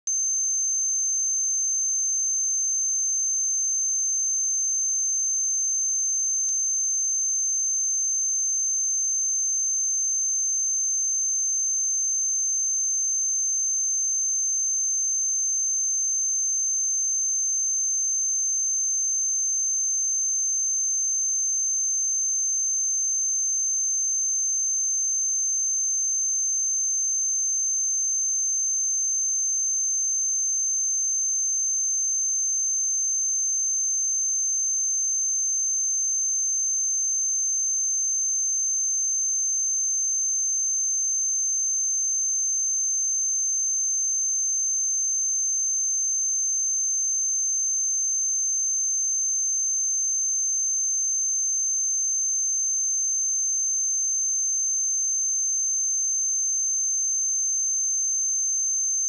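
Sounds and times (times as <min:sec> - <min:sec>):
high-pitched sine test tone: 0:00.1 - 0:59.0.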